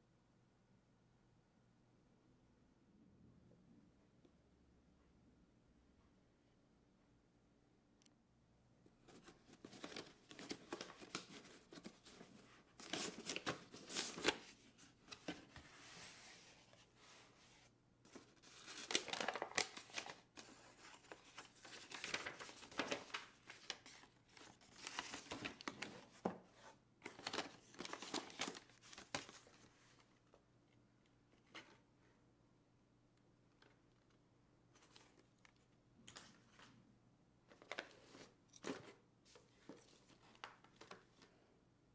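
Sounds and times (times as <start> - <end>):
paper rustling and tearing: 18.1 - 29.6.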